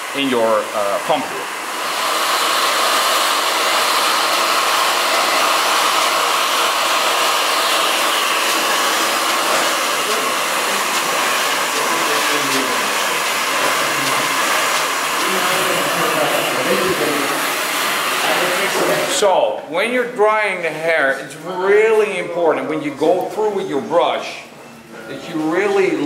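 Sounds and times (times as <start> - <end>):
hair dryer running: 0.0 - 19.5.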